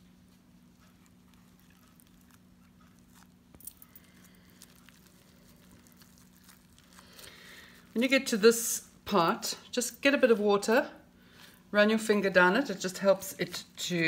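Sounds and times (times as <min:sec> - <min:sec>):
hands rolling sushi crackling: 0:00.0 - 0:08.8
low steady hum: 0:00.0 - 0:14.0.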